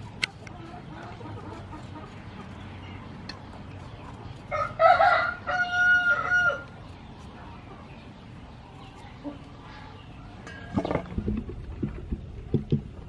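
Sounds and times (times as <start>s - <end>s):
rooster crowing: 4.5s - 6.7s.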